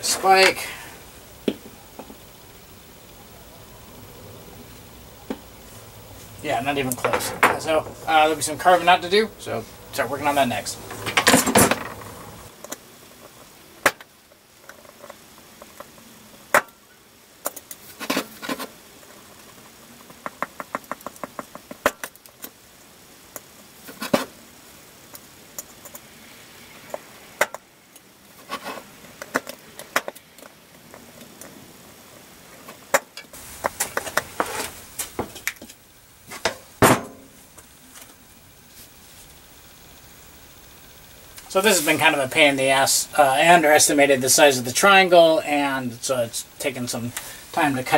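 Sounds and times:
shield fittings knocking and clattering: 6.8 - 8.5.

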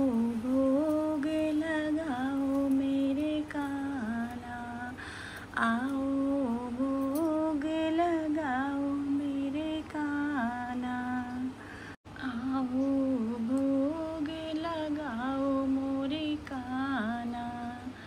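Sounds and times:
woman breathing: 5.0 - 5.6, 11.6 - 12.1.

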